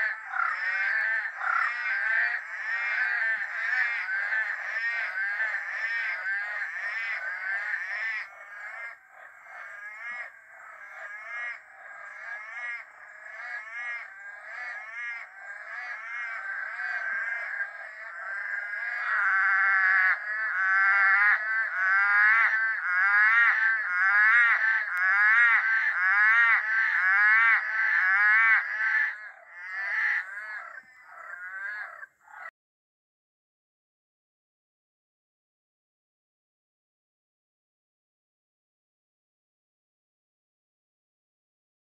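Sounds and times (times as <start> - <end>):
tree frogs calling: 0.0 - 32.5.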